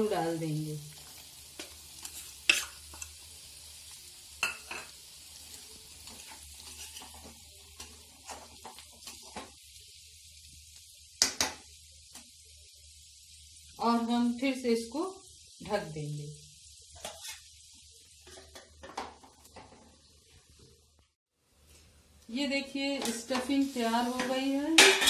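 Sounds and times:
faint sizzle of frying: 0:00.0 - 0:25.0
spatula clanking on pan: 0:04.4 - 0:05.0, 0:24.2 - 0:25.0
spatula scraping metal pan: 0:06.2 - 0:07.3, 0:17.0 - 0:17.5.

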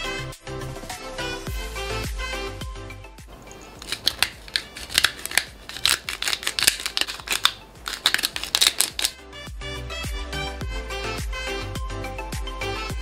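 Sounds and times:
background music: 0:00.0 - 0:13.0
pepper grinder crunching: 0:03.3 - 0:09.2.

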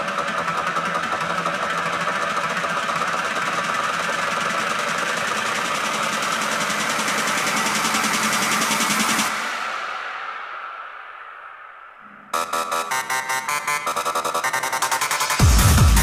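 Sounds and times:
held synth tone: 0:12.0 - 0:15.4
fast buzzing synth pulse: 0:12.3 - 0:16.0.

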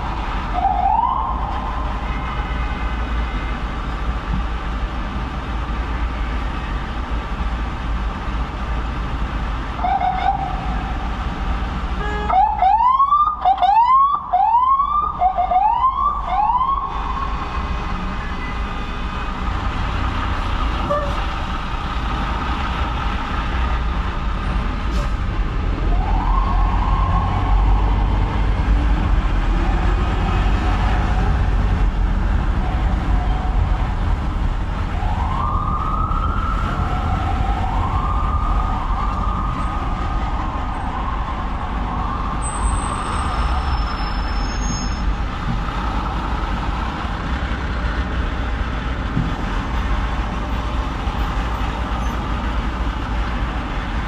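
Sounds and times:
ambulance siren sweeping: 0:00.0 - 0:02.1, 0:09.8 - 0:10.9, 0:12.0 - 0:17.5, 0:25.6 - 0:28.6, 0:34.7 - 0:45.0
city traffic rumble: 0:00.0 - 0:54.0.

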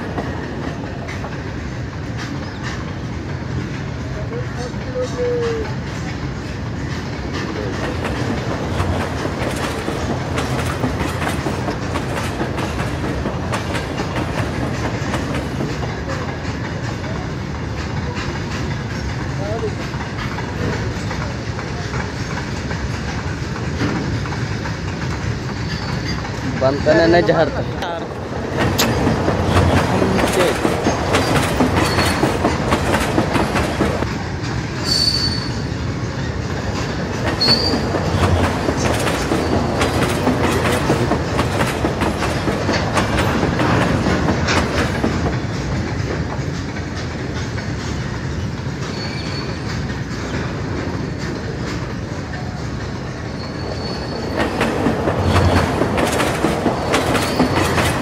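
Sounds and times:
train wheels clacking on rails: 0:00.0 - 0:58.0
high wheel squeals: 0:25.4 - 0:26.4, 0:31.2 - 0:32.4, 0:34.8 - 0:36.4, 0:37.4 - 0:38.0, 0:48.4 - 0:49.9, 0:52.4 - 0:54.7, 0:56.8 - 0:58.0.

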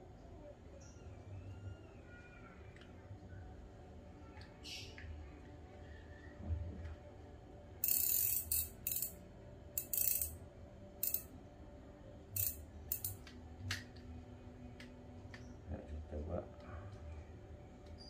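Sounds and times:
fishing reel ratcheting: 0:07.8 - 0:09.2, 0:09.8 - 0:10.4, 0:11.0 - 0:11.3, 0:12.4 - 0:13.2.

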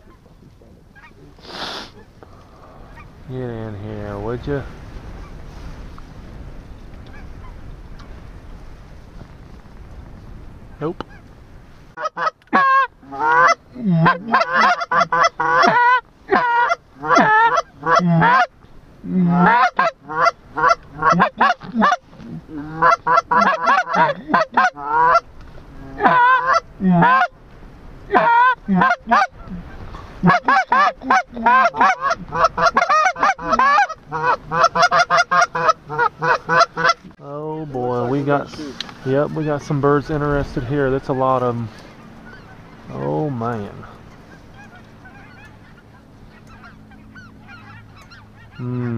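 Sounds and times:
goose honking: 0:12.0 - 0:18.5, 0:19.2 - 0:27.3, 0:28.1 - 0:48.9.

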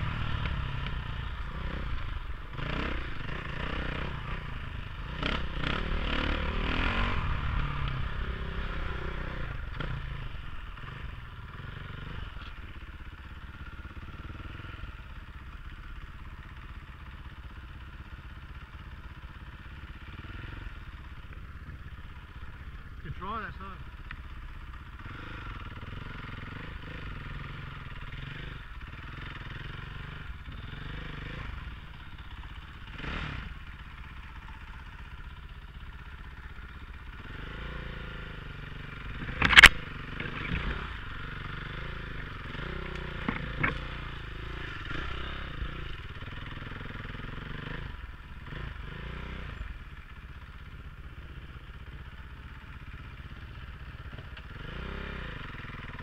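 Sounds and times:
dirt bike engine running: 0:00.0 - 0:56.0
branches striking helmet camera: 0:39.1 - 0:40.8, 0:42.8 - 0:44.1.

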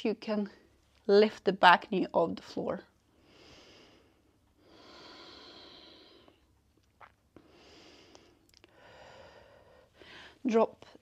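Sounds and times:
person breathing slowly: 0:03.2 - 0:06.5, 0:07.4 - 0:10.4.

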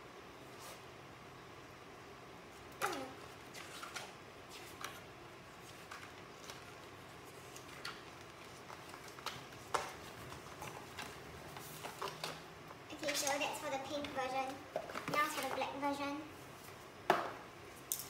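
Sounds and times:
book pages turning: 0:02.9 - 0:12.4.

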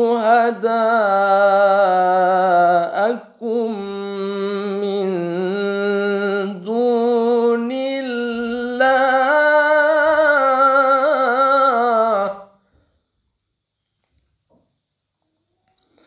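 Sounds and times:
man chanting melodically: 0:00.0 - 0:12.6.

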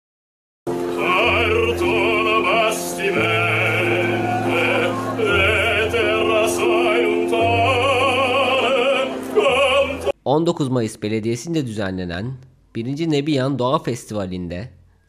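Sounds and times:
man singing opera with vibrato: 0:00.7 - 0:10.2
piano playing held chords: 0:00.7 - 0:10.2.

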